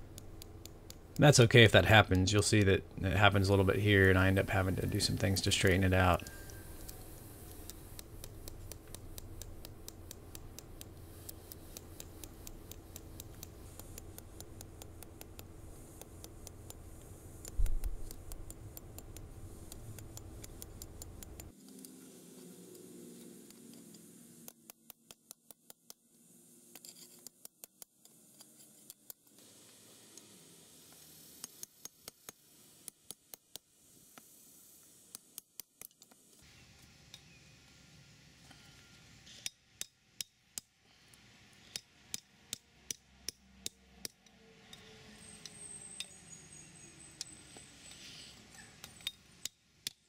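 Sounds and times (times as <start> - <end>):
hammer tapping on hot steel: 0.0 - 2.7, 3.4 - 21.6, 39.4 - 40.8, 41.6 - 46.2, 48.8 - 50.0.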